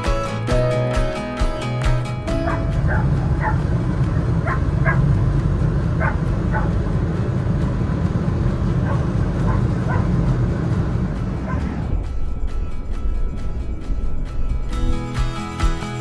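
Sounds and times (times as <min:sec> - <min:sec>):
ferry engine rumble: 0:00.0 - 0:16.0
wind: 0:00.0 - 0:16.0
dog yipping: 0:02.4 - 0:03.6, 0:04.4 - 0:05.1, 0:06.0 - 0:06.8, 0:08.8 - 0:10.2.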